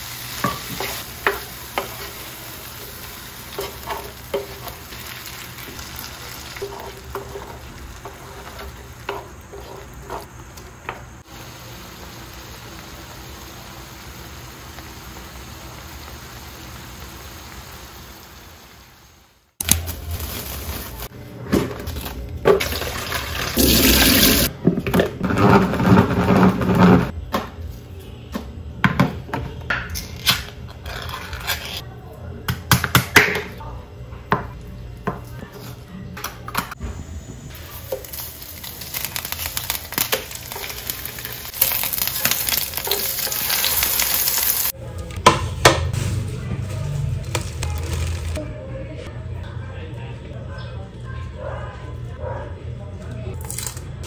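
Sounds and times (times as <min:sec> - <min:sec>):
water running from a tap: 0:22.6 - 0:24.5.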